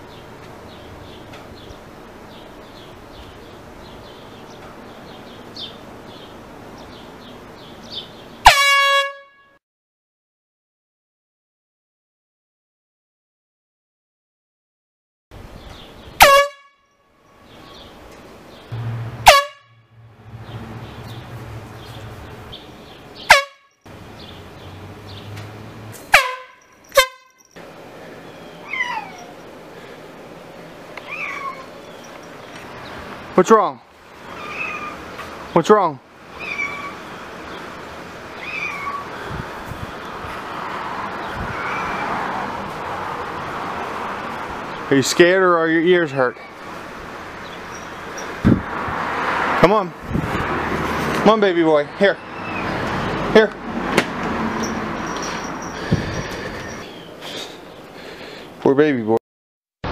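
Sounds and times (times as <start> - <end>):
air horn blast: 8.4 - 9.6, 16.2 - 16.8, 18.8 - 21.5, 23.3 - 23.7, 26.1 - 27.4
low steady hum: 18.7 - 22.8.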